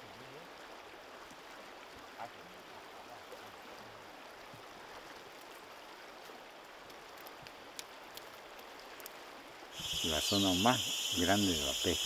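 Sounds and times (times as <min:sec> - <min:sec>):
light ticks and drips: 0:00.0 - 0:09.8
river water rushing: 0:00.1 - 0:12.0.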